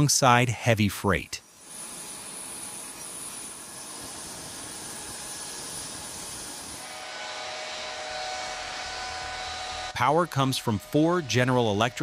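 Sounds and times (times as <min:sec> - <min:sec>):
jet engines rushing: 0:03.9 - 0:12.0.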